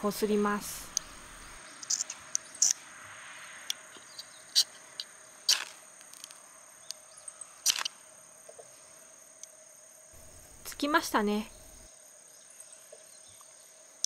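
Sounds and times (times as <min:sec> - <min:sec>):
striker scraping fire-starter rod: 0:05.5 - 0:06.3.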